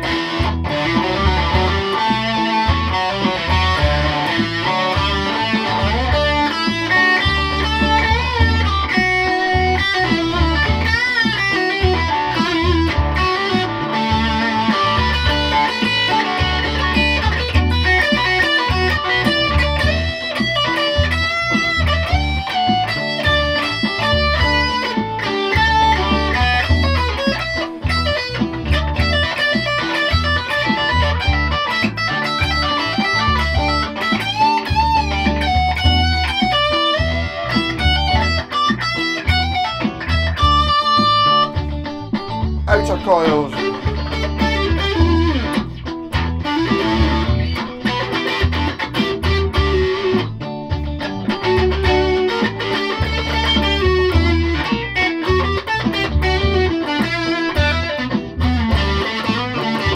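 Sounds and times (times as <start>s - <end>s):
electric guitar through amplifier: 0.0s - 59.9s.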